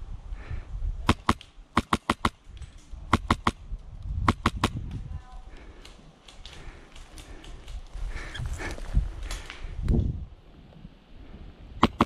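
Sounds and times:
airsoft rifle shots: 1.1 - 2.4, 3.1 - 3.6, 4.3 - 4.8, 11.8 - 12.0.

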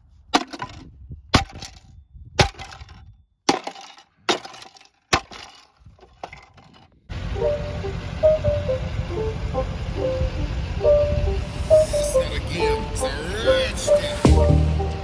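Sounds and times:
metal bar striking plastic: 0.3 - 6.9.

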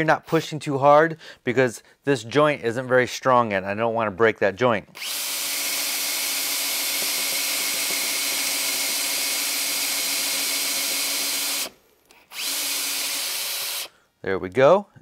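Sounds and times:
cordless drill boring into wood: 5.0 - 13.9.

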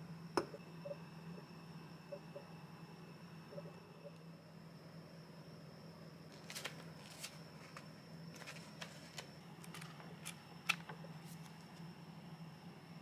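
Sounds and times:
steady low hum: 0.0 - 13.0
book pages rustling: 6.3 - 11.7.

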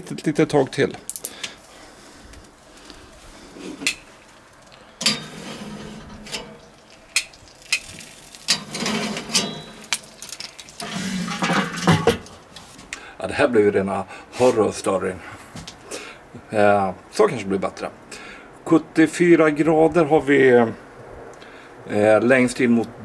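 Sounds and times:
metal cooking gear clinking: 5.0 - 12.5.

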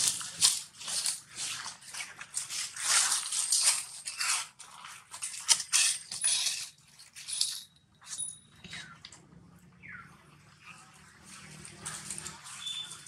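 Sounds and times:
dry leaves crackling and rustling: 0.0 - 5.9, 11.2 - 13.0.

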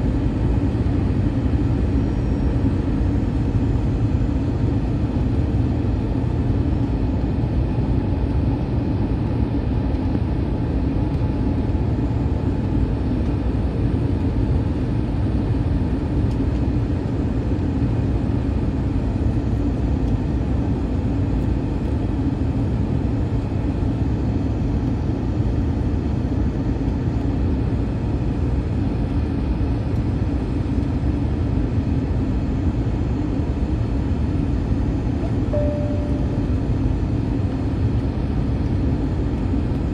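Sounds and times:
airplane cabin drone: 0.0 - 39.9
steady hum at one pitch: 35.2 - 37.5.

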